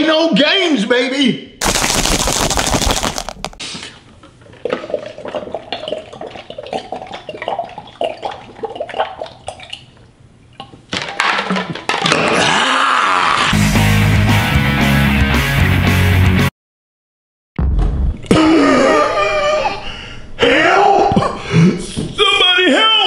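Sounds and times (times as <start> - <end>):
burst of noise: 1.6 - 3.6
liquid glugging while drinking: 4.3 - 10.7.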